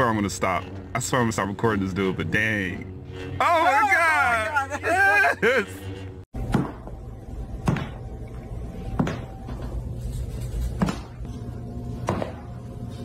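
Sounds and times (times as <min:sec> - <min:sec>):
low steady hum: 0:05.4 - 0:13.0.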